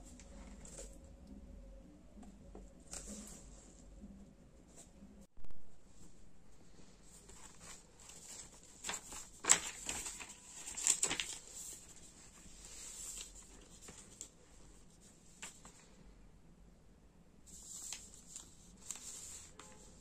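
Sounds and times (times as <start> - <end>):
paper pages rustling: 7.0 - 15.9, 17.5 - 20.0.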